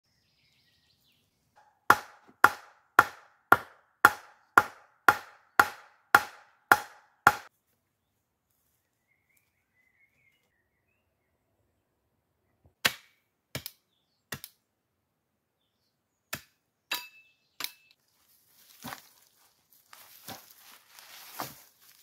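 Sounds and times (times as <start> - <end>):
wooden club hammering log: 1.6 - 7.5.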